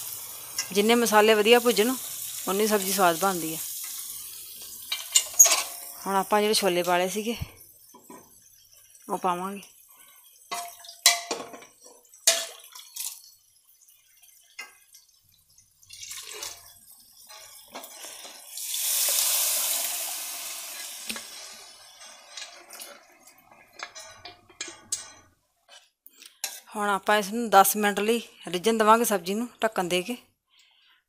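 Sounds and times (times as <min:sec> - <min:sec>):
water pouring into a pan: 0:00.0 - 0:24.3
metal spoon clinking on cooker: 0:04.9 - 0:05.9, 0:23.8 - 0:25.3
steel ladle clinking in pan: 0:04.9 - 0:05.9, 0:23.8 - 0:25.3.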